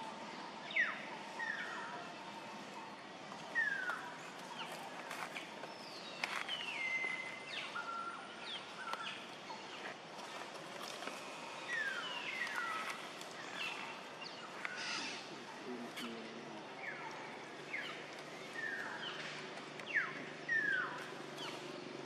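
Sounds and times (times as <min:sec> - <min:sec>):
outdoor ambience: 0:00.0 - 0:22.0.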